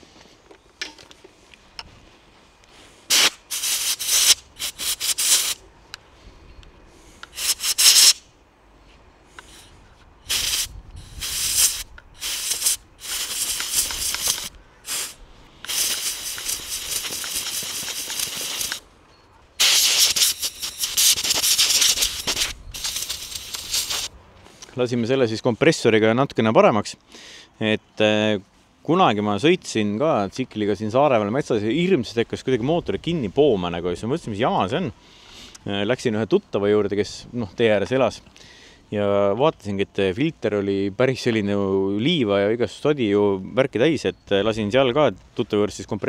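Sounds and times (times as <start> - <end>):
compressed air hissing blasts: 2.8 - 5.6, 6.9 - 8.3, 9.3 - 18.8, 19.6 - 24.1.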